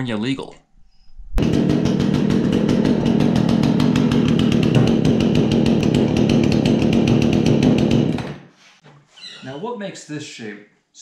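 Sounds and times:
chainsaw engine running: 0:01.4 - 0:08.3.

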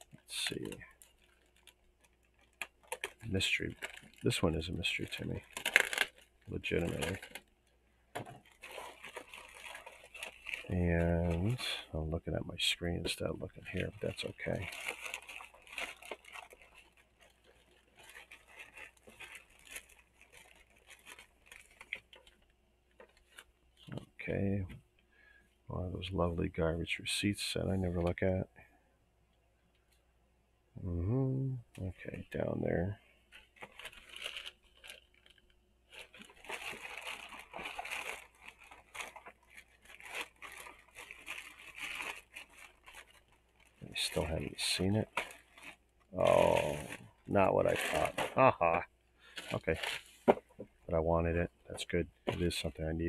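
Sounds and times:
plastic bag rustling and crinkling: 0:00.0 - 0:12.0, 0:12.6 - 0:24.1, 0:33.3 - 0:50.9.

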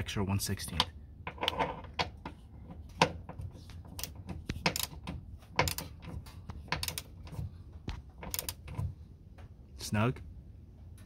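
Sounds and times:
ratchet wrench clicking: 0:04.0 - 0:07.4, 0:08.2 - 0:08.8.

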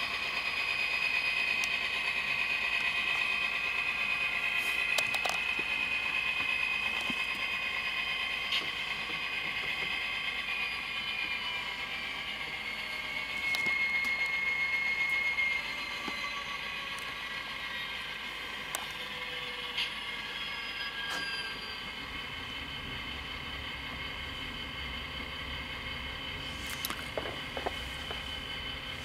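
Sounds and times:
model locomotive diesel engine sound: 0:00.0 - 0:29.0.

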